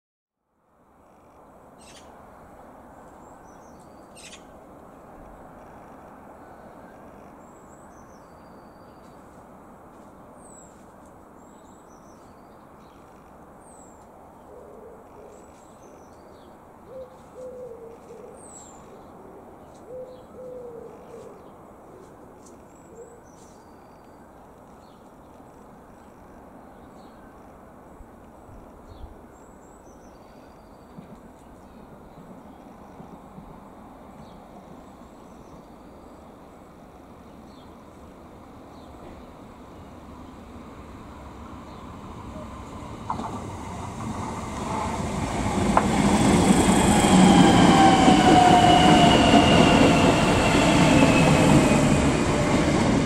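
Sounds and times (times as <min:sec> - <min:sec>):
small birds chirping: 0:01.3 - 0:02.1, 0:03.2 - 0:04.6.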